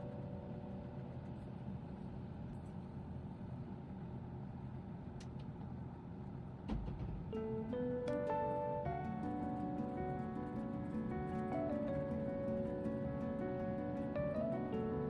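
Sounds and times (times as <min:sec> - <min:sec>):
soft background music: 0:00.0 - 0:01.9, 0:06.8 - 0:15.0.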